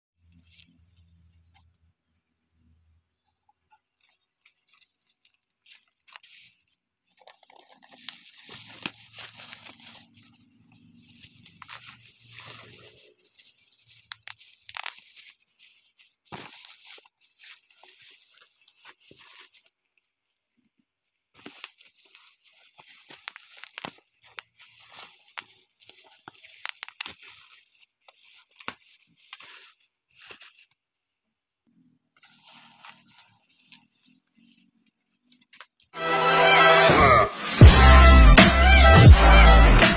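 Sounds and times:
bubble wrap crinkling and tearing: 3.9s - 30.9s, 32.2s - 35.9s.

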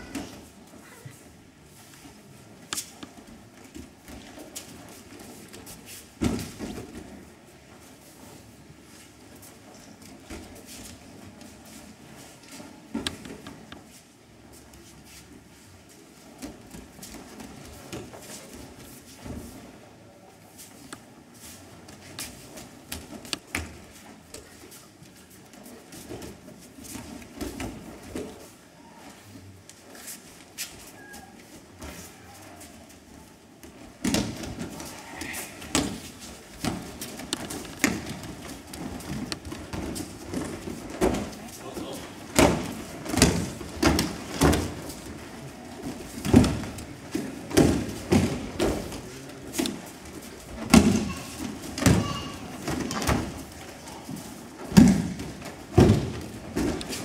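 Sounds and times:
bodies thudding on mats: 33.6s - 57.0s.

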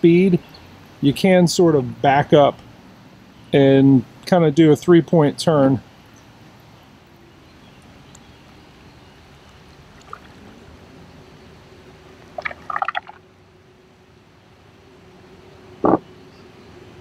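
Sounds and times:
lakeside water: 7.5s - 11.6s, 12.2s - 13.5s.

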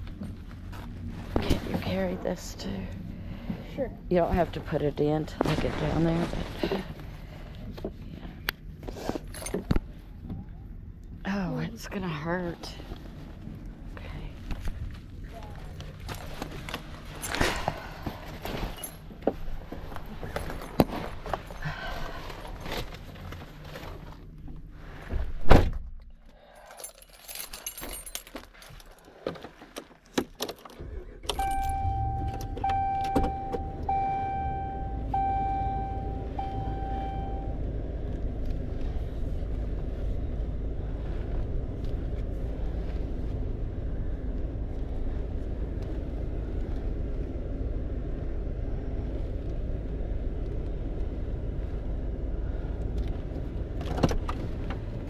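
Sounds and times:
keys jangling: 26.6s - 29.0s
truck engine starting and idling: 30.6s - 55.0s
dashboard warning chime: 31.3s - 37.6s.

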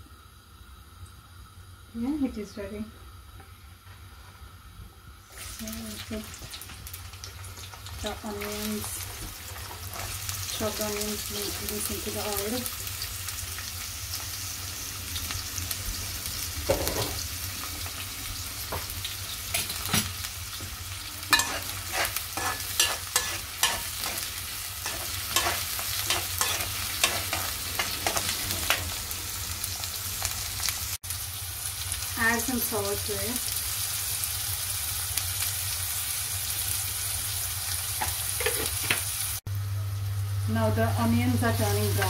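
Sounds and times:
onions sizzling in oil: 0.0s - 42.0s
spatula scraping a wok: 9.1s - 10.3s, 21.2s - 29.0s, 38.0s - 39.0s.

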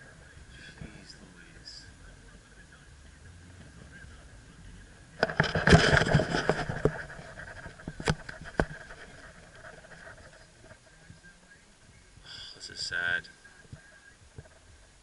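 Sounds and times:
camera handling knocks and scrapes: 5.2s - 10.8s.

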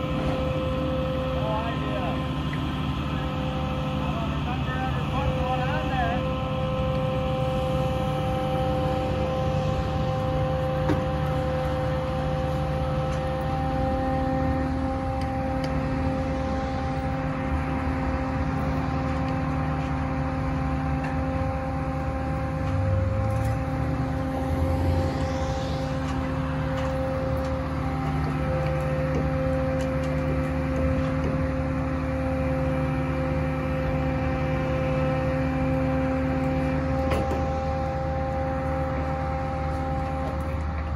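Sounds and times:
crane engine rumble: 0.0s - 40.9s
hydraulic whine: 0.0s - 40.9s.

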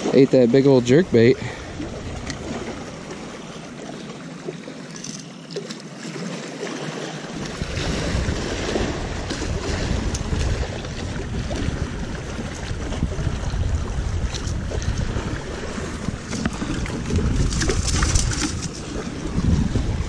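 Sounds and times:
wind buffeting microphone: 0.0s - 3.4s, 7.4s - 20.0s
waves lapping against rocks: 0.0s - 20.0s.

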